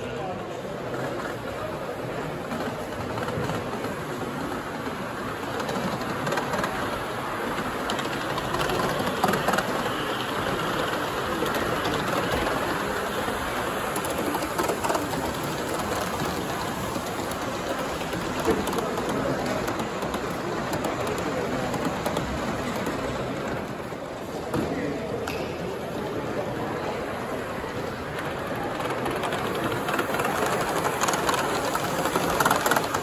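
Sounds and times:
model steam locomotive hissing: 1.8s - 22.8s, 27.8s - 33.0s.

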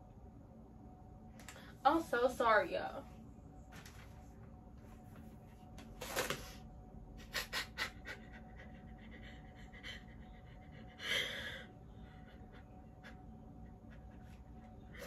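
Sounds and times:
woman crying and sniffling: 7.2s - 15.0s.

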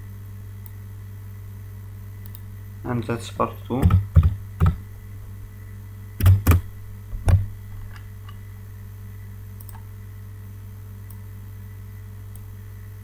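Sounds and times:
low electrical hum: 0.0s - 13.0s
computer keyboard keystrokes: 3.8s - 4.8s, 6.2s - 6.7s.

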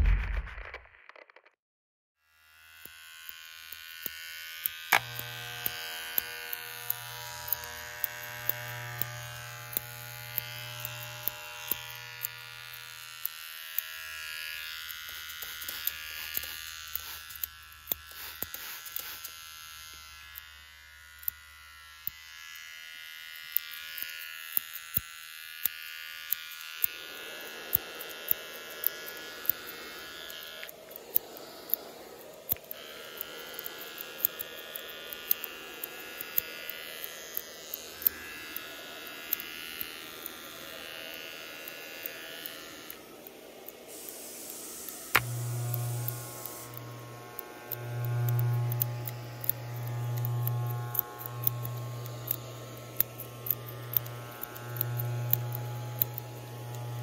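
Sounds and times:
electric hair clippers buzzing: 2.2s - 57.0s
sharp clicks: 27.7s - 38.7s, 41.7s - 57.0s
rough hiss: 43.4s - 47.6s.

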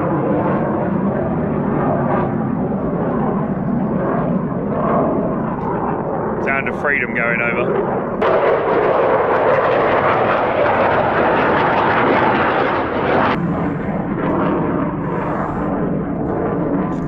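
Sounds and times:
military jet flying over: 0.0s - 17.0s.

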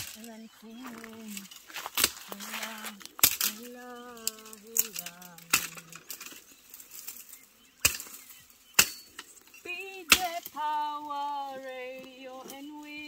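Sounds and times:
machete chopping woody stems: 1.8s - 3.6s, 4.2s - 7.2s, 7.8s - 9.4s, 10.1s - 10.6s
person singing long notes: 2.3s - 6.2s, 9.6s - 13.0s.

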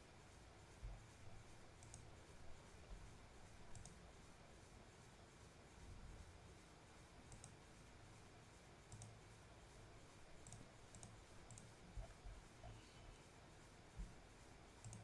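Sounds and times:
computer mouse clicks: 1.8s - 2.1s, 3.7s - 4.0s, 7.3s - 7.6s, 8.9s - 9.2s, 10.4s - 12.8s, 14.8s - 15.0s.

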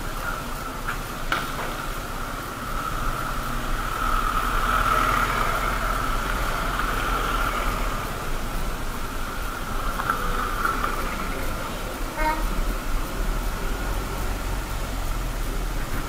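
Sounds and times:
motorcycle engine and road noise: 0.0s - 16.0s.

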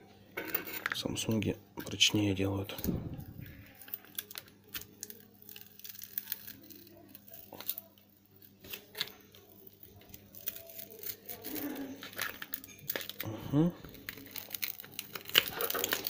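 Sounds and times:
small clicks and scrapes: 14.0s - 16.0s.

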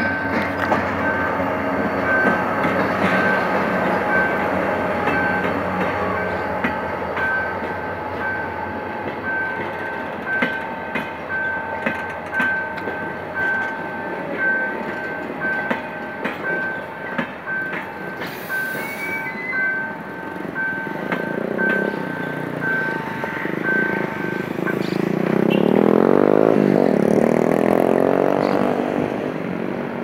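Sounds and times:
train rumble: 0.0s - 30.0s
train wheels clacking on rails: 0.0s - 30.0s
high beep: 17.5s - 25.7s.

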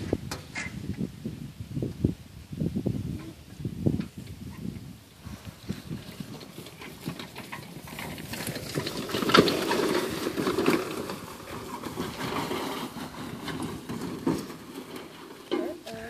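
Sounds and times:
metal cart rattling on grass: 3.8s - 16.0s.

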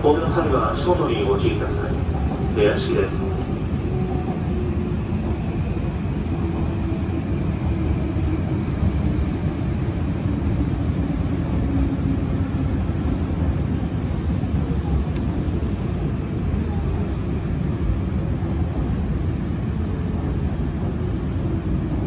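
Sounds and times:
train wheels rumbling on rail: 0.0s - 22.0s.

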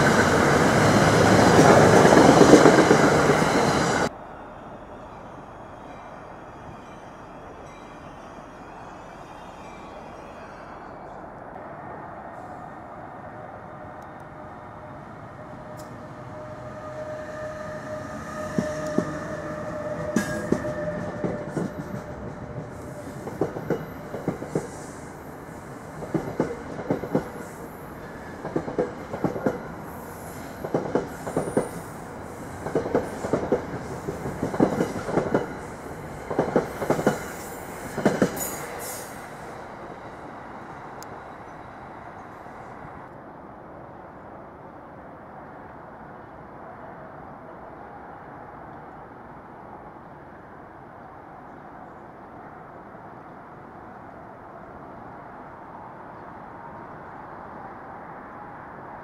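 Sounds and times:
train steady whine: 0.0s - 59.0s
train wheels clicking over rail joints: 32.6s - 39.1s.

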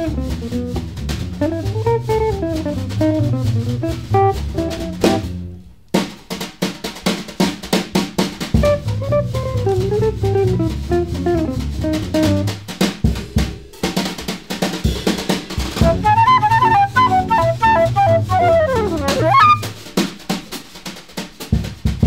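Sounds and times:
plucked bass line: 0.0s - 5.6s, 8.6s - 12.5s, 15.8s - 19.7s
snare and cymbal strokes: 0.0s - 22.0s
flute: 8.6s - 9.8s, 15.8s - 19.8s.

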